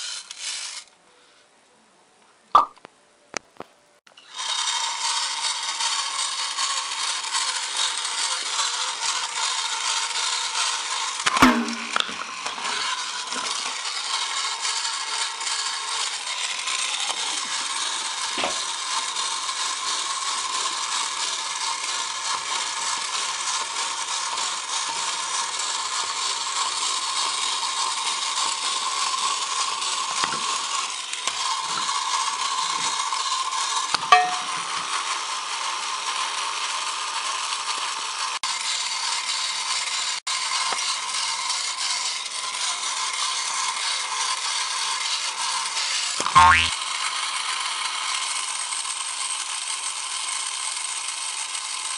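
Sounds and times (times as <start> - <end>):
toy motor whirring: 0.0 - 0.9, 4.2 - 51.9
sharp knock: 11.3 - 12.0.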